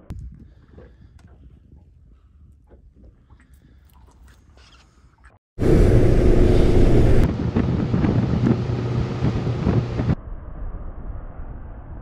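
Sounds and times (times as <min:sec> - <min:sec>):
wind buffeting microphone: 0:00.1 - 0:03.8, 0:05.6 - 0:10.2
motorboat engine hum: 0:05.6 - 0:10.2
water rushing past hull: 0:05.6 - 0:10.2.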